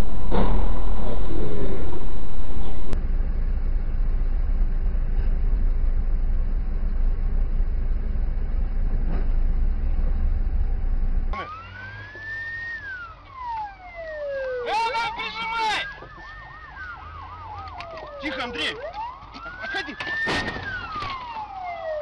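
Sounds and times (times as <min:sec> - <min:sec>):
car road and engine rumble: 0:00.0 - 0:22.0
police siren wailing: 0:11.4 - 0:22.0.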